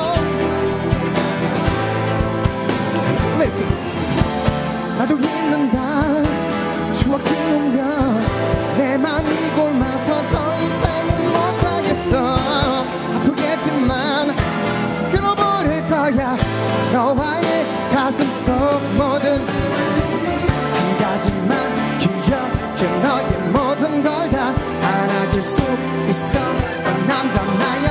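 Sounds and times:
electric keyboard: 0.0s - 27.9s
man singing pop ballad: 0.0s - 27.9s
steady beat: 0.1s - 7.2s.

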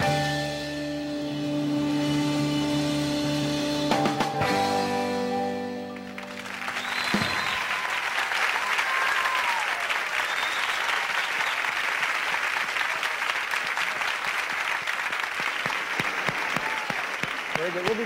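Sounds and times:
audience applauding: 5.7s - 18.0s.

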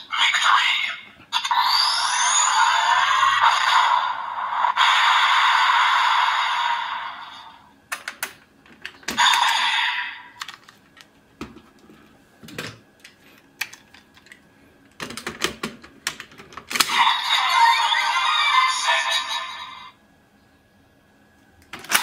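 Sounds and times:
toy electronic sound effect: 0.0s - 7.6s, 9.2s - 10.4s, 16.9s - 20.0s.

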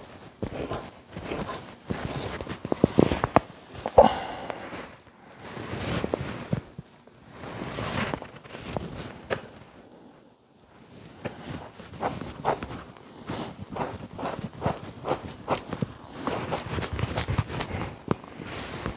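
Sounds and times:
knife scraping hide: 0.0s - 3.2s, 11.3s - 17.9s.

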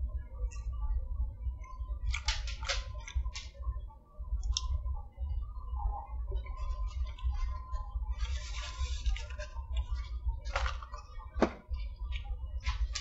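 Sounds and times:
steady low hum: 0.0s - 13.0s
paper napkin rustling: 8.2s - 11.6s.

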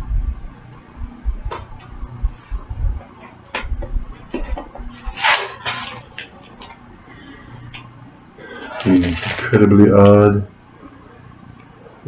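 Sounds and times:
rustling: 8.4s - 9.6s.

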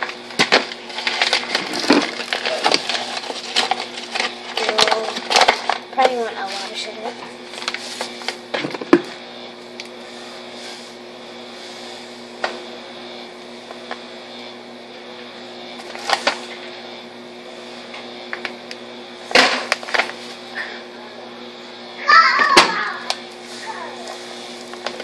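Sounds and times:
paper bag rustling: 0.0s - 8.8s, 15.8s - 16.5s
low electrical hum: 0.0s - 25.0s.

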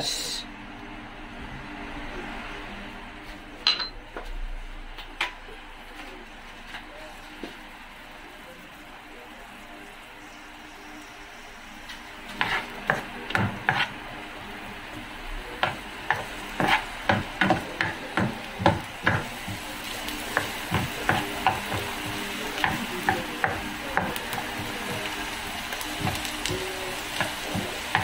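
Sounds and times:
onion sizzling in hot oil: 7.1s - 28.0s
spatula scraping frying pan: 12.3s - 14.0s, 16.1s - 17.6s.

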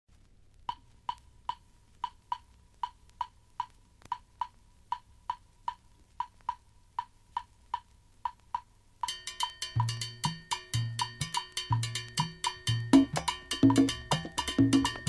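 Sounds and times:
wooden percussion clicks: 0.7s - 8.7s.

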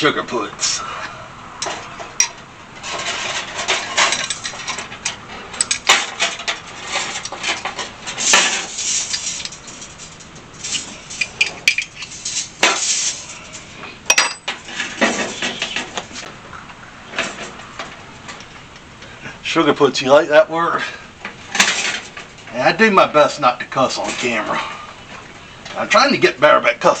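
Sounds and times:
metal scrape: 0.7s - 16.3s.

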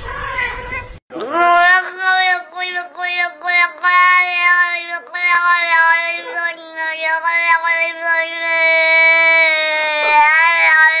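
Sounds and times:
cat meowing: 0.0s - 1.0s.

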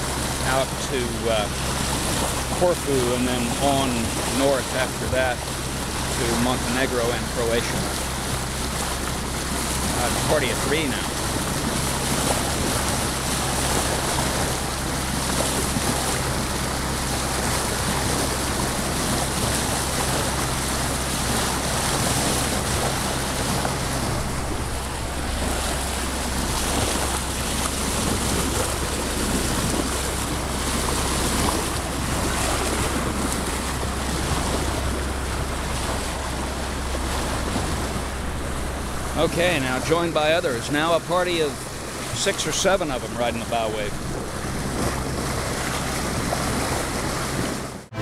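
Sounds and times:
steady low hum: 0.0s - 48.0s
water rushing along hull: 0.0s - 48.0s
wind on microphone: 11.0s - 39.3s, 43.8s - 48.0s.

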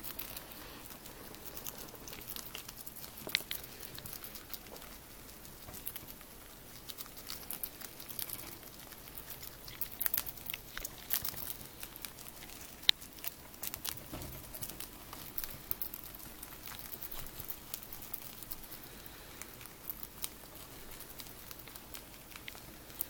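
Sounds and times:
rats chewing with crunches: 0.0s - 23.0s.

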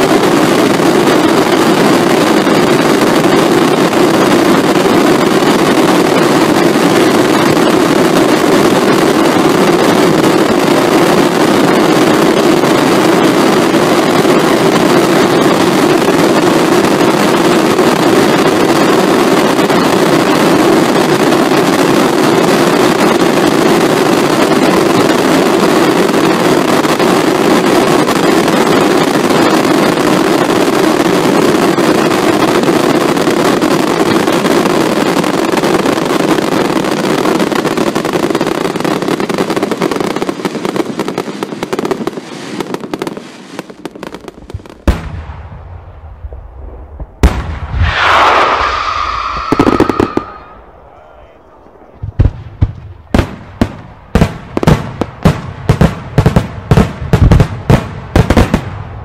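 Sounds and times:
fireworks crackling: 0.0s - 59.0s
sharp firework bang: 44.5s - 55.1s
firework pops: 46.2s - 50.6s.

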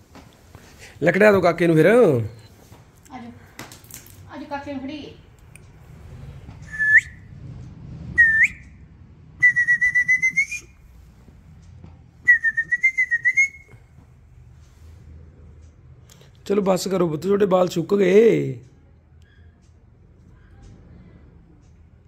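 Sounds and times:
person whistling: 6.6s - 7.3s, 8.2s - 8.8s, 9.4s - 10.8s, 12.3s - 13.8s.

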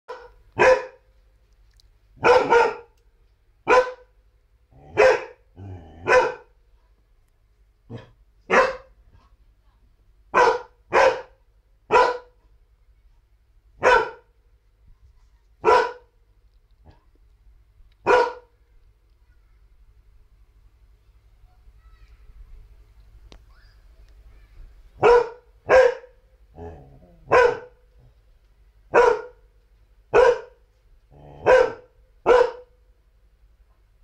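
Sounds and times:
large dog barking: 0.1s - 1.0s, 2.2s - 3.0s, 3.6s - 4.2s, 4.8s - 6.6s, 7.9s - 9.0s, 10.3s - 12.4s, 13.8s - 14.4s, 15.6s - 16.2s, 18.0s - 18.6s, 25.0s - 27.8s, 28.9s - 29.5s, 30.1s - 32.8s.

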